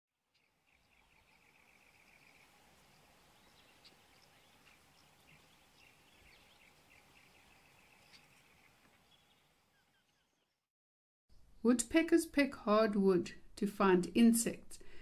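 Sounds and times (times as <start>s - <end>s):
faint bird trill: 0.3s - 10.6s
faint background hiss: 0.4s - 9.5s.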